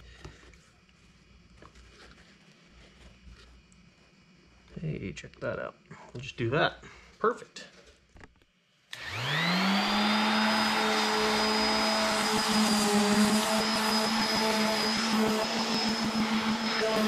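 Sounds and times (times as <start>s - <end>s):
orbital sander motor whine: 8.9s - 17.0s.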